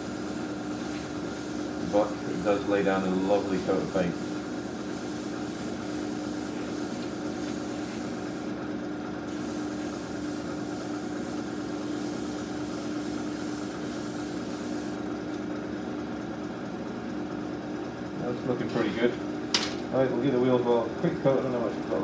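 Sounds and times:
airbrush hissing: 0.0 - 8.5, 9.3 - 15.0
steady machine hum: 0.0 - 22.0.

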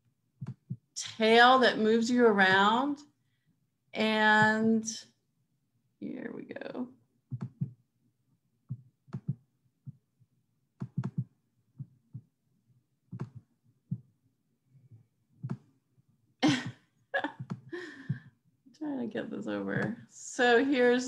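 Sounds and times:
computer mouse clicks: 7.3 - 7.8, 9.1 - 9.4, 10.8 - 12.3, 13.1 - 14.0.

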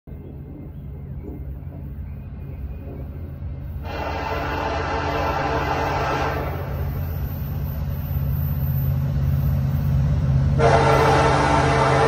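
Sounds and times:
locomotive rumble: 0.1 - 12.0
train air horn: 3.8 - 6.8, 10.5 - 12.0.

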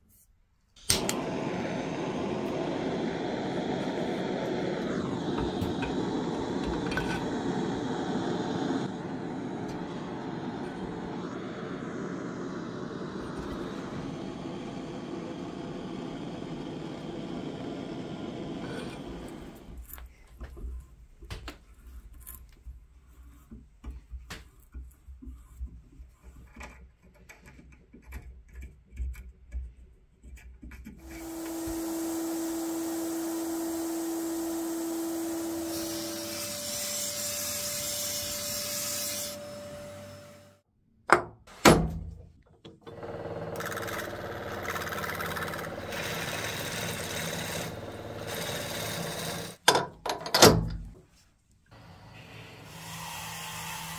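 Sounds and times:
gas torch flame roaring: 0.8 - 19.9, 31.0 - 40.6, 42.9 - 49.6, 51.7 - 53.9
clicks and scraping on metal: 20.0 - 31.0
motor running with whine: 31.0 - 40.6, 42.9 - 49.6.

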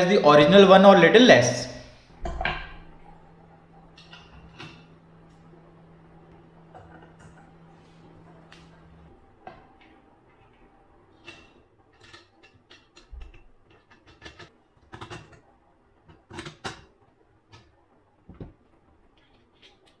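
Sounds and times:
tools clicking and tapping: 11.2 - 15.4.

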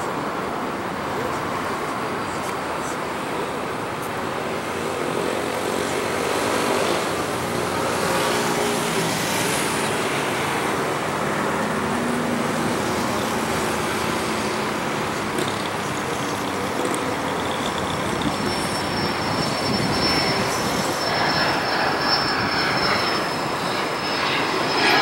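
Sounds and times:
faint high engine whine: 0.0 - 25.0
jet engines roaring at takeoff: 0.0 - 25.0.

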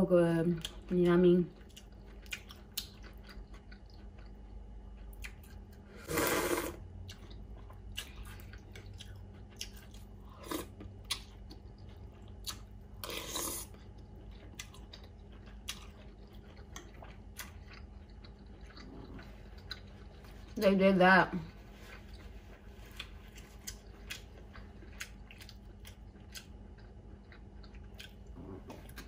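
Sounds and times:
wet chewing: 0.6 - 5.8, 6.4 - 20.6, 21.4 - 29.0
slurping noodles: 6.0 - 6.8, 13.0 - 13.8.

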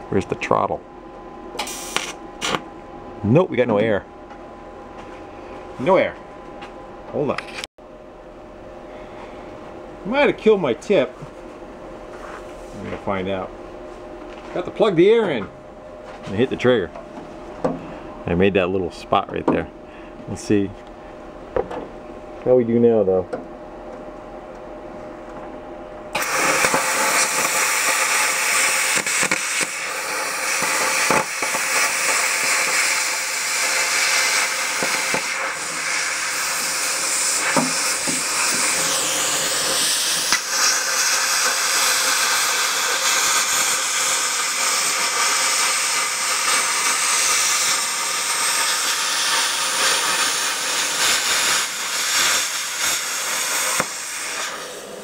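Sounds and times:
plasma cutter hissing: 1.6 - 2.6, 26.2 - 55.0.

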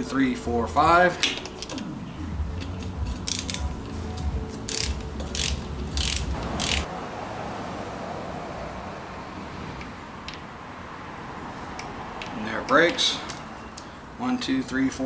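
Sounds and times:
torque wrench ratchet clicking: 2.7 - 3.7, 4.7 - 6.9.

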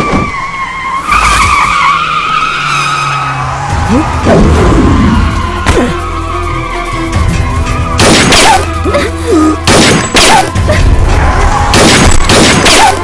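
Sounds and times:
dramatic background music: 3.0 - 13.0
gunshot blasts: 8.0 - 8.6, 9.7 - 10.5, 11.7 - 13.0.

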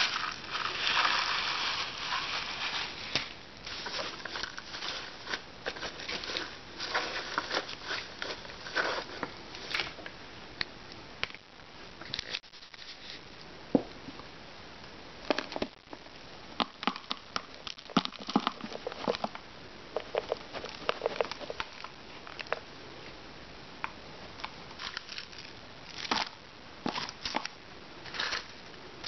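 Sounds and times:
potting mix rustling: 0.0 - 10.1, 16.7 - 22.7, 24.4 - 29.0.

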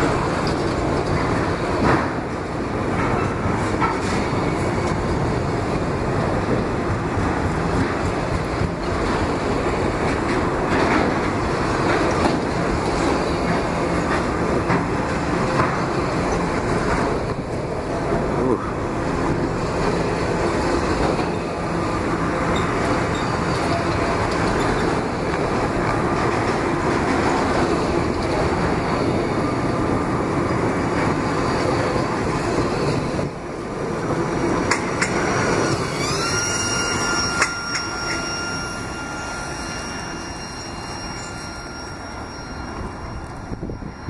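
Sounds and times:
train wheels clattering on rail: 0.0 - 44.0
thin wheel squeal: 35.2 - 44.0.

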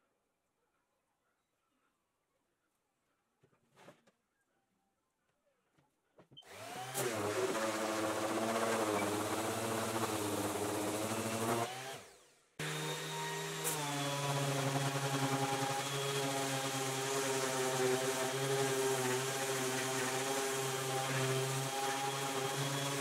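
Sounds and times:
power tool motor spinning: 6.4 - 23.0.

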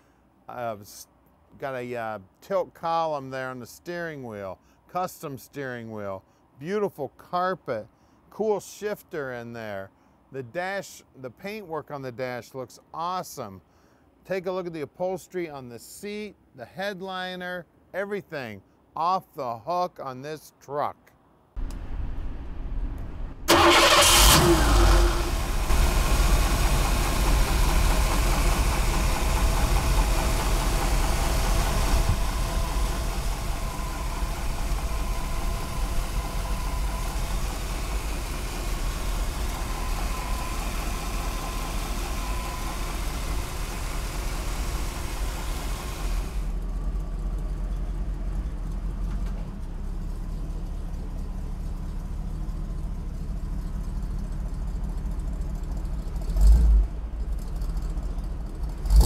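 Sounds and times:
vee eight engine starting and idling: 21.6 - 59.0.

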